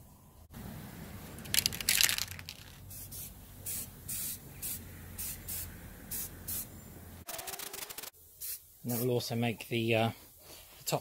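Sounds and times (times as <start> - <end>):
aerosol spray can hissing: 2.8 - 6.7, 7.6 - 9.1.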